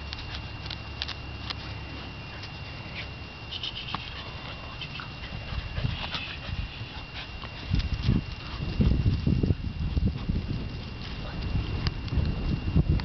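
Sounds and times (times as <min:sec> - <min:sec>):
puppy scuffling on dry grass: 0:00.0 - 0:13.0.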